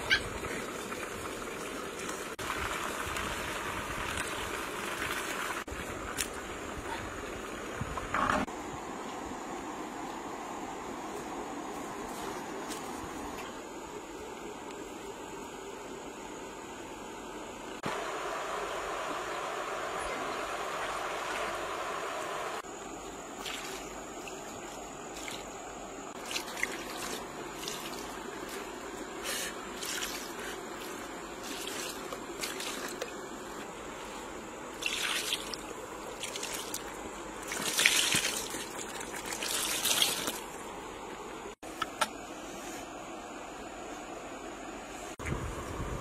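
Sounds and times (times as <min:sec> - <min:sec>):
wet squelches and drips: 0:26.2 - 0:29.1, 0:34.8 - 0:40.6
water trickling: 0:34.7 - 0:40.6.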